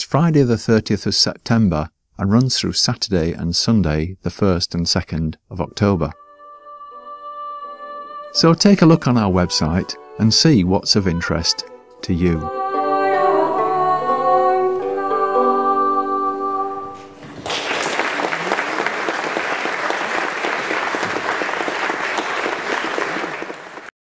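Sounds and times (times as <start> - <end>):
person singing with instruments: 5.7 - 17.2
audience applause: 17.2 - 23.9.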